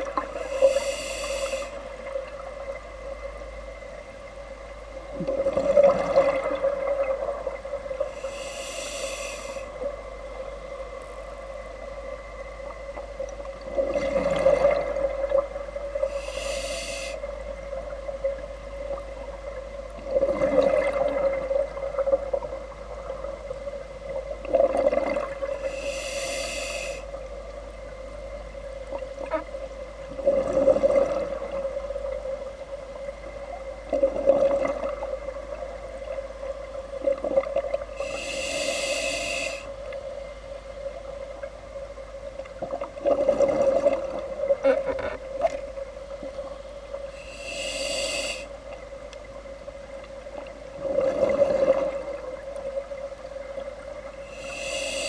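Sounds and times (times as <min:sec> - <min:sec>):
steady hum: 0:00.0 - 0:55.0
regulator breathing hiss: 0:00.3 - 0:02.0, 0:08.0 - 0:09.8, 0:15.9 - 0:17.3, 0:25.5 - 0:27.2, 0:37.9 - 0:39.8, 0:47.0 - 0:48.6, 0:54.2 - 0:55.0
exhaled bubbles rushing: 0:05.2 - 0:07.6, 0:20.0 - 0:21.6, 0:24.5 - 0:25.4, 0:30.2 - 0:31.6, 0:42.9 - 0:44.3, 0:50.8 - 0:52.2.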